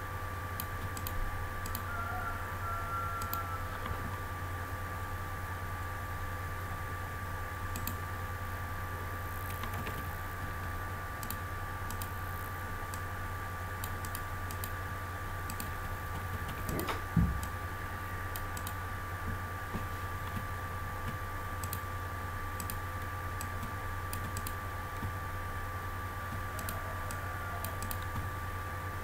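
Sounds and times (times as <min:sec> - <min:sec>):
electrical hum: 0:00.0 - 0:29.0
mouse clicks: 0:00.6 - 0:01.9, 0:07.7 - 0:08.0, 0:11.2 - 0:12.2, 0:13.8 - 0:14.8, 0:15.5 - 0:15.8, 0:18.3 - 0:18.8, 0:19.8 - 0:21.8, 0:22.6 - 0:25.2, 0:26.3 - 0:28.3
keyboard keystrokes: 0:09.5 - 0:10.1, 0:15.5 - 0:17.6, 0:19.8 - 0:21.8, 0:22.6 - 0:25.2.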